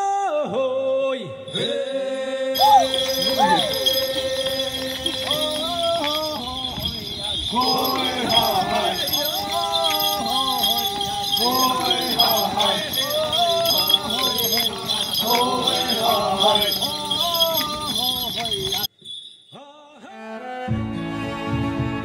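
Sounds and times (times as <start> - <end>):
jingling bells: 1.4 - 19.9
men chanting: 2.5 - 18.9.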